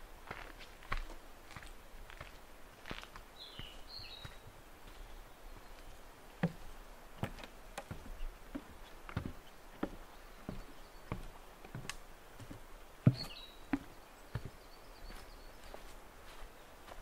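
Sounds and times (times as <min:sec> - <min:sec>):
footsteps on a trail: 0:00.2 - 0:17.0
small bird chirping: 0:13.0 - 0:15.9.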